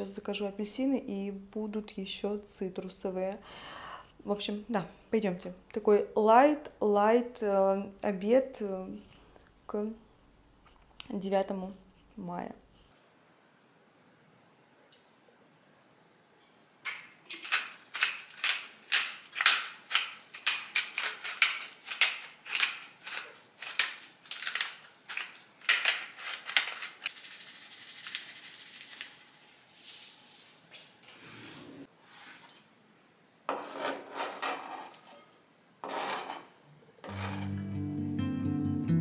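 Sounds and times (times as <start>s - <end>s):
spice grinder grinding: 17.3s - 29.2s, 35.8s - 37.7s.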